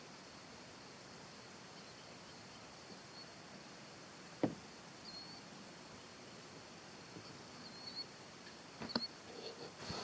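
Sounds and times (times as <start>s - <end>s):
faint high chirps: 0.7s - 3.4s, 5.0s - 8.2s.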